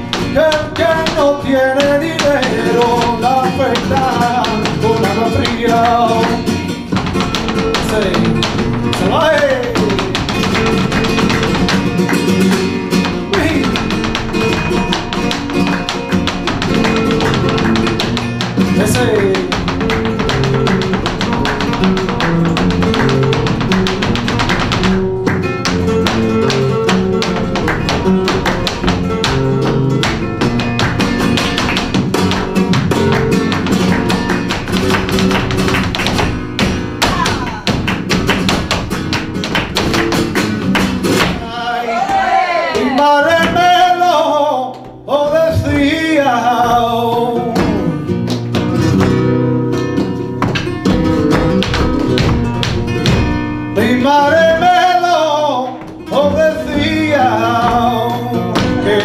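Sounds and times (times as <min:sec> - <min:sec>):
man singing: 0:00.0 - 0:11.0, 0:13.2 - 0:15.3, 0:16.8 - 0:20.8, 0:41.4 - 0:48.1, 0:53.7 - 0:59.0
percussive footwork on stage floor: 0:00.0 - 0:59.0
spanish guitar: 0:00.0 - 0:59.0.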